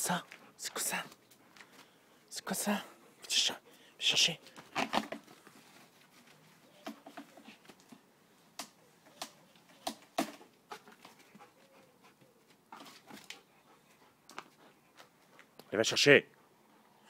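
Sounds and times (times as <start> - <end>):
dog claws scratching bark: 4.7 - 5.3.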